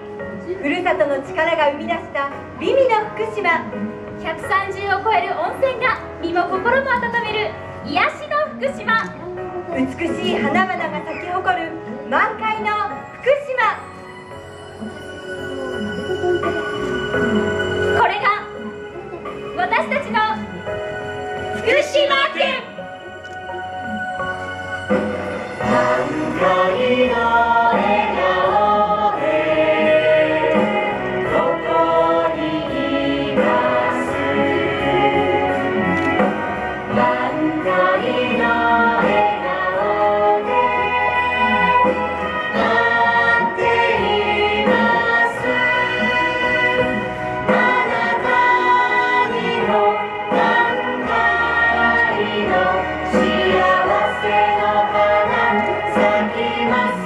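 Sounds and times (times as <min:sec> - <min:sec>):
group singing over music: 0:24.9 - 0:57.0.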